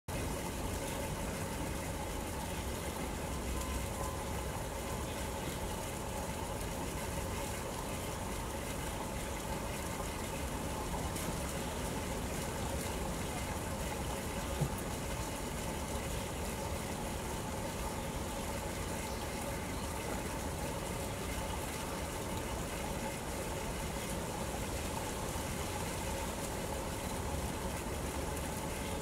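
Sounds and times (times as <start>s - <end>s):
faint mechanical hum: 0.1s - 29.0s.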